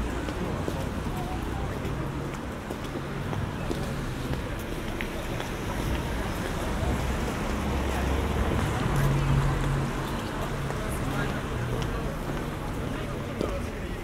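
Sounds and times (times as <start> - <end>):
traffic on wet road: 0.0 - 14.0.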